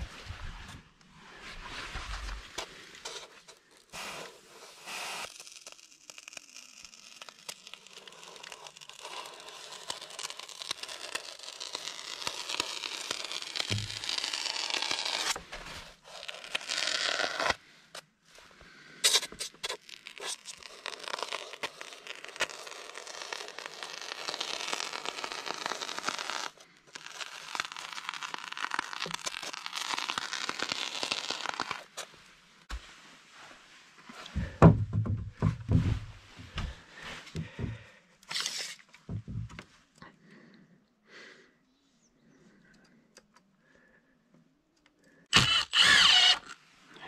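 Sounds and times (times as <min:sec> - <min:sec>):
knocks and thumps: 0:34.4 - 0:36.8, 0:39.1 - 0:39.6.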